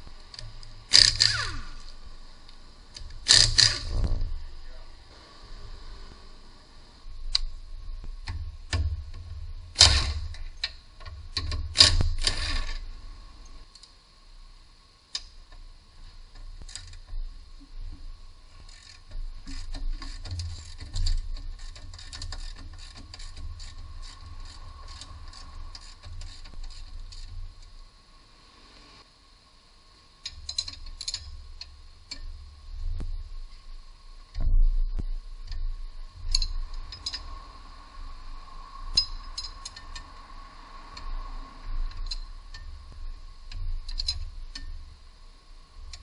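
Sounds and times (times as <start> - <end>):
ratchet wrench clicking: 0.3 - 2.0, 2.9 - 4.0, 8.2 - 12.9, 18.6 - 27.7, 30.2 - 32.4, 36.2 - 37.5, 38.8 - 41.2, 41.8 - 42.8, 43.4 - 44.9.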